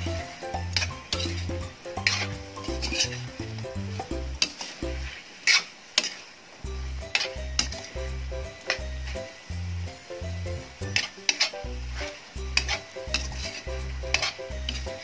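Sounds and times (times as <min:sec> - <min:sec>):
background music with bass: 0:00.0 - 0:05.1, 0:06.7 - 0:15.0
metal spatula scraping a wok: 0:00.0 - 0:09.3, 0:10.6 - 0:15.0
food sizzling: 0:00.0 - 0:15.0.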